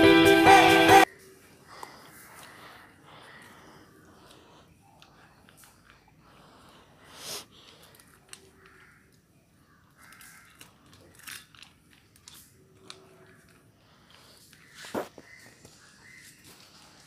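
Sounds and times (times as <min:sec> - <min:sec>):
dog crunching kibble: 0:09.9 - 0:15.4.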